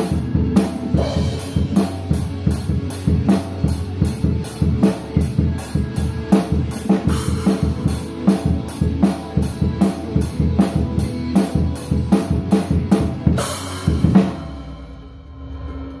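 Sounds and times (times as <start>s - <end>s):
drum kit beat: 0.0s - 15.1s
cymbal crash: 13.4s - 16.0s.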